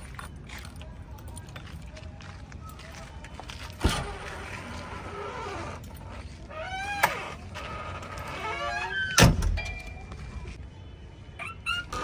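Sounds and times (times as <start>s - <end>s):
door hinges squeaking: 6.5s - 9.7s, 11.4s - 12.0s.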